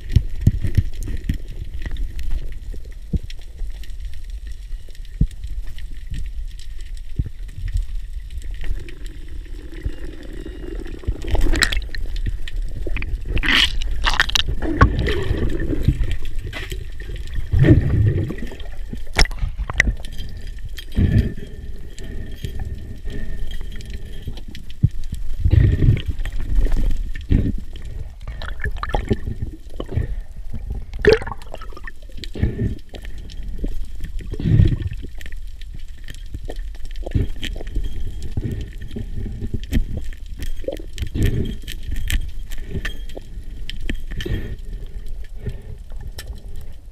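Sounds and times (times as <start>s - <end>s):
water rushing and bubbling: 7.2s - 42.8s.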